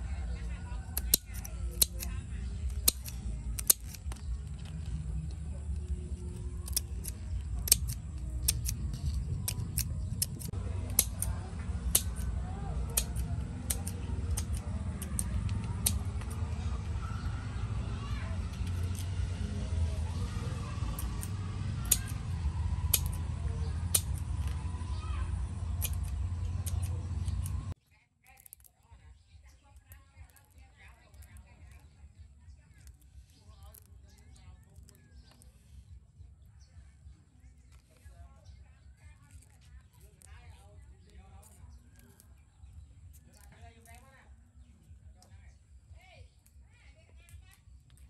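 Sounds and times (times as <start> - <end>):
steady low rumble: 0.0 - 27.8
scissors snipping: 0.5 - 17.0, 18.5 - 28.7.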